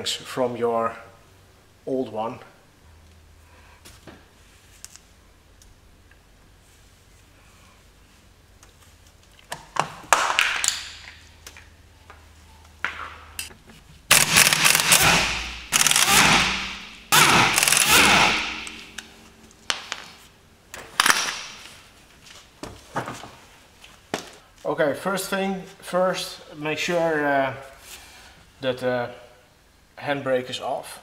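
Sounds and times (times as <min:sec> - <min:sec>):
impact wrench hammering: 0:14.1 - 0:19.0, 0:21.0 - 0:21.7.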